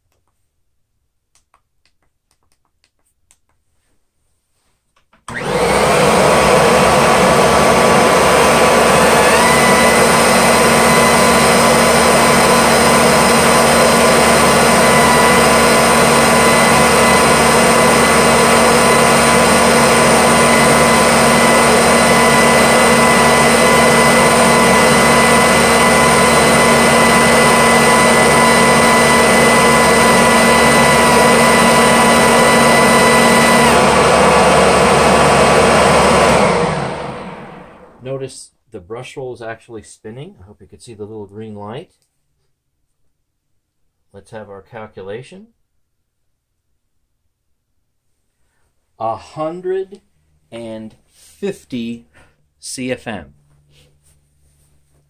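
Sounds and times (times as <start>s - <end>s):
upright vacuum running: 5.3s - 38.2s.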